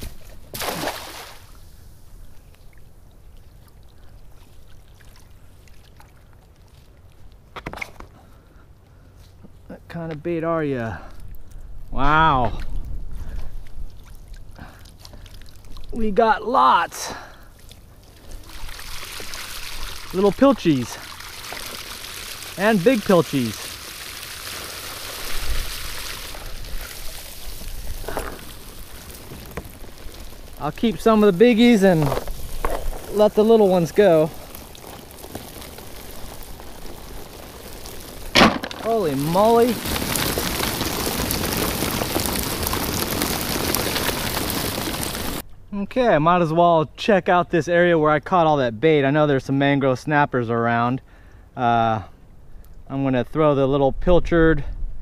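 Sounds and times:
net splashing into water: 0.0 - 1.6
water trickling and dripping: 0.2 - 7.4, 13.6 - 16.0, 17.1 - 45.4.

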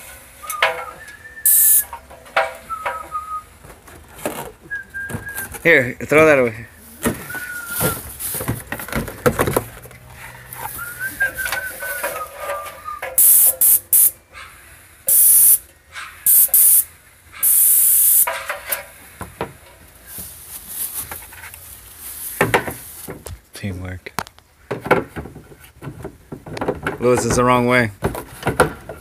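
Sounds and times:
spray gun hissing: 1.5 - 1.8, 13.2 - 14.1, 15.1 - 15.6, 16.3 - 18.3.

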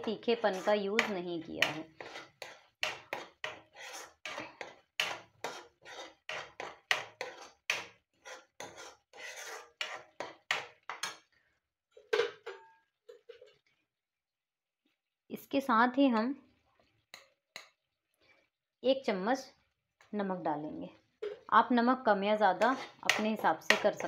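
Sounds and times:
spatula scraping paste in pan: 0.0 - 11.2, 22.6 - 24.0.

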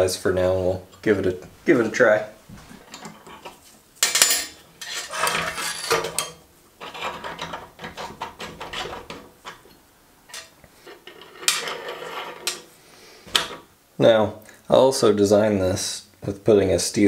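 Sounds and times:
metal parts clinking and scraping: 2.8 - 9.7, 10.3 - 12.7.

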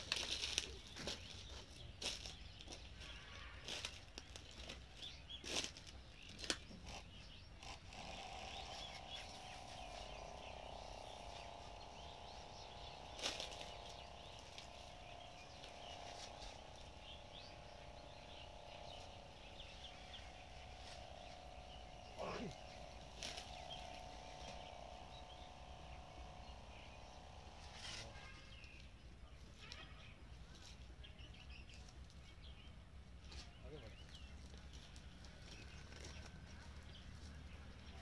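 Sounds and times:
sprayer motor humming: 6.9 - 29.1.

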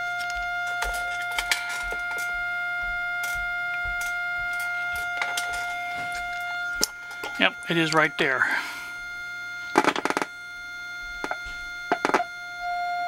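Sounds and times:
steady test tone: 0.0 - 13.0
probe clicks and scratches: 9.7 - 10.4, 11.0 - 12.3.

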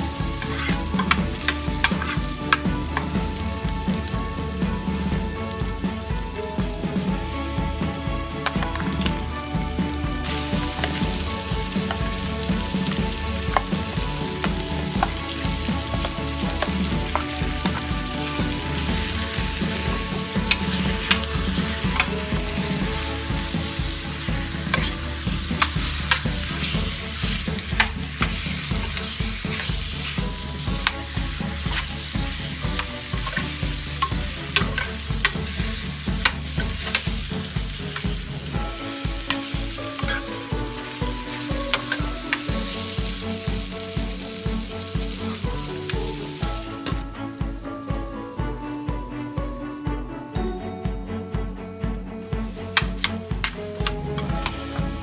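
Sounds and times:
chicken sizzling in butter: 0.0 - 48.5, 52.4 - 55.0
metal spoon scraping pan: 0.2 - 3.2, 15.9 - 38.2, 39.2 - 42.6.

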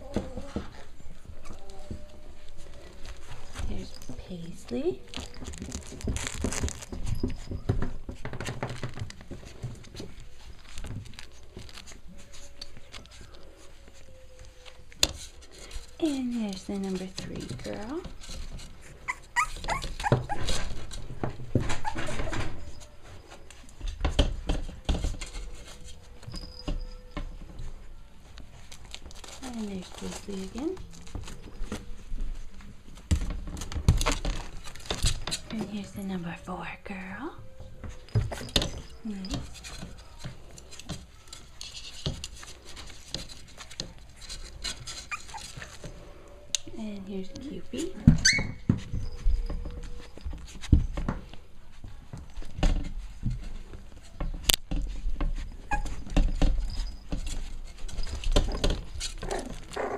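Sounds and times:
puppies scratching on a rug: 0.0 - 59.9
scuffling and rustling: 0.0 - 59.9
puppies yipping and whimpering: 18.8 - 23.2, 44.8 - 46.0, 48.2 - 50.2, 55.5 - 57.0.

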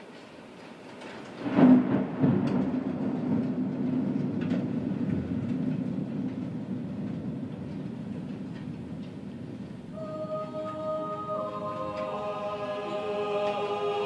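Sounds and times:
thunder clap and rumble: 1.2 - 10.0.

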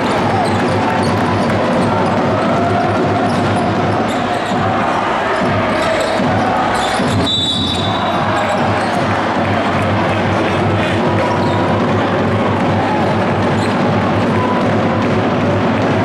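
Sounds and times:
basketball bouncing on court: 0.0 - 16.0
high whistle tone: 6.9 - 8.1.

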